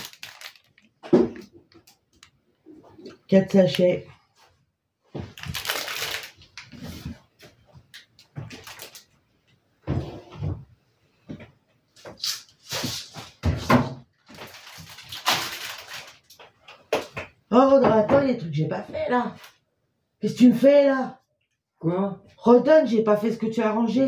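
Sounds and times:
plastic packaging rustling: 0.0s - 2.3s, 5.2s - 7.2s, 8.0s - 9.2s, 14.2s - 16.7s
cupboard doors opening and shutting: 9.8s - 10.7s, 13.3s - 14.1s.

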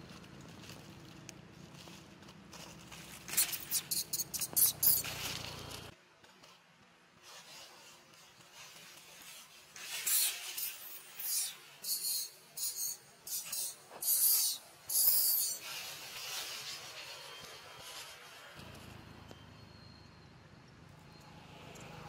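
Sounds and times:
dry leaves rustling: 0.0s - 6.6s.

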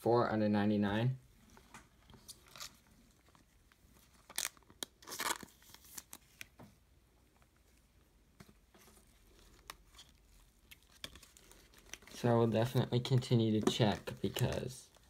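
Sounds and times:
plastic card sleeve crinkling: 1.5s - 6.6s, 8.5s - 15.0s.

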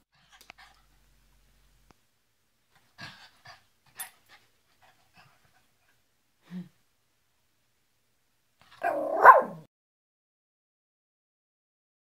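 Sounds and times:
dog whining: 8.8s - 9.7s
dog yelping: 8.8s - 9.7s.

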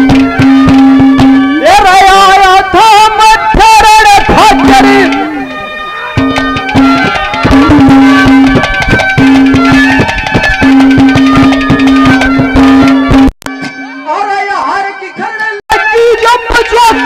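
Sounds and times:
held melody note: 0.0s - 17.0s
rapid hand drum strokes: 6.2s - 13.3s.

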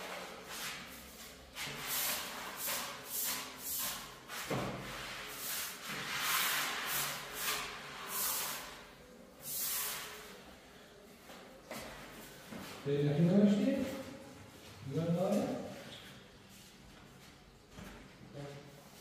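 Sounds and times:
broom sweeping concrete floor: 0.0s - 10.7s.

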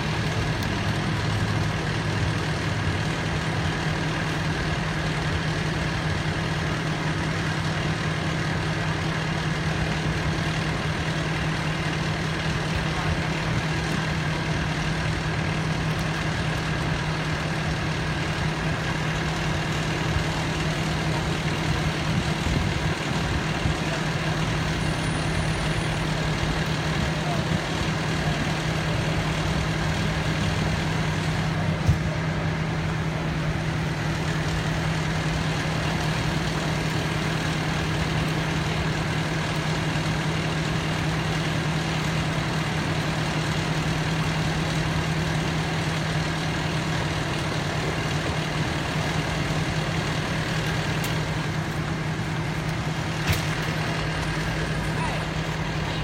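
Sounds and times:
fire engine idling: 0.0s - 56.0s.

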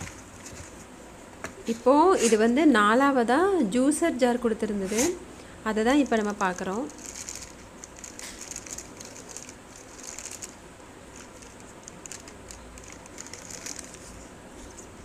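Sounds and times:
plastic bag crinkling: 6.0s - 14.2s.

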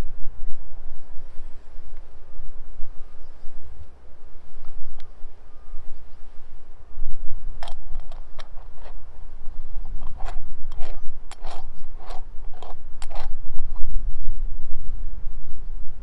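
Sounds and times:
metal scraping: 7.6s - 13.9s.

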